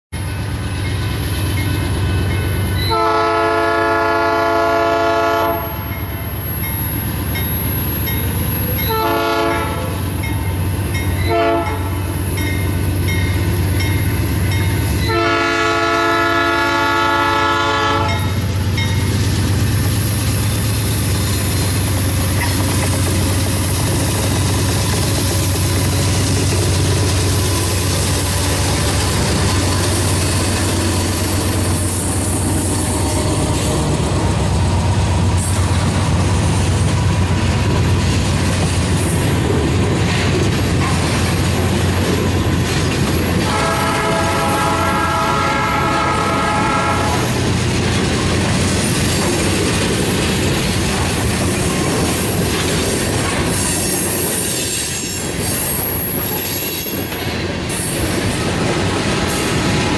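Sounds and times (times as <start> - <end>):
locomotive engine and wheels passing: 0.1 - 3.0, 5.5 - 59.9
locomotive air horn blasts: 2.8 - 5.9, 8.9 - 10.0, 11.2 - 12.1, 15.0 - 18.4, 43.4 - 47.4
tank cars clickety-clack rolling: 21.3 - 31.4, 47.6 - 59.9.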